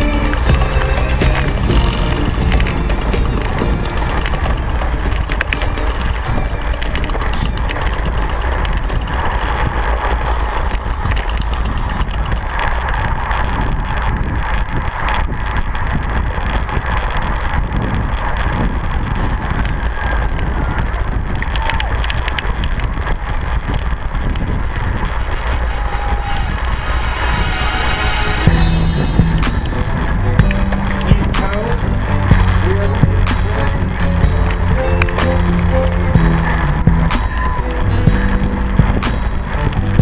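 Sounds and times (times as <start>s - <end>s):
bike clicks and rattles: 0.0s - 24.9s
wind buffeting microphone: 0.0s - 40.0s.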